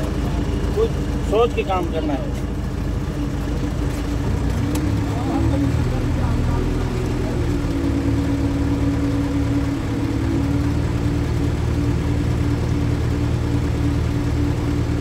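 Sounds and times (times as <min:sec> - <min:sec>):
crane diesel engine and hydraulics: 0:00.0 - 0:15.0.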